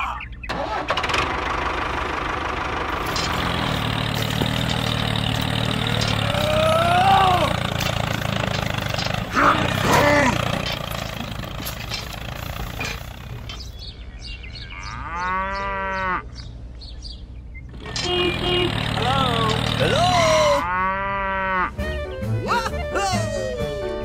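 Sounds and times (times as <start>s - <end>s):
small motor running: 2.9s - 13.6s, 17.7s - 20.4s
cow mooing: 3.1s - 10.9s, 14.7s - 16.3s, 18.4s - 21.8s.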